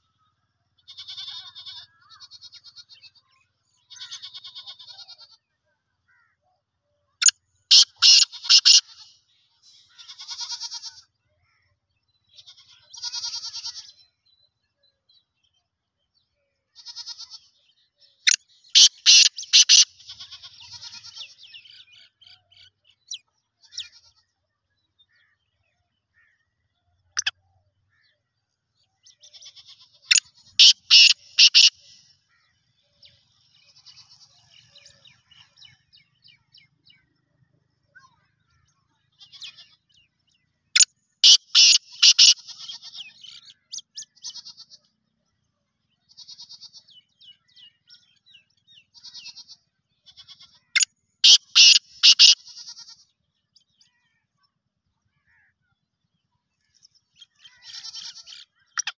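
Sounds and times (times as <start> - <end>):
high chirring bird notes: 7.7 - 9.0, 18.3 - 20.0, 30.1 - 31.9, 40.8 - 42.9, 51.2 - 52.7
francolin harsh rattling call: 7.7 - 9.2, 18.3 - 21.8, 29.2 - 32.5, 40.8 - 44.7, 50.1 - 52.9, 57.4 - 58.9.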